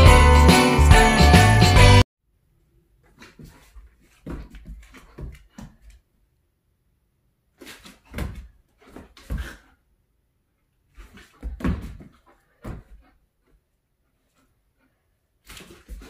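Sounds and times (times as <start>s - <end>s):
dog paws thumping on wooden floor: 3.3s - 6.0s, 11.0s - 13.1s.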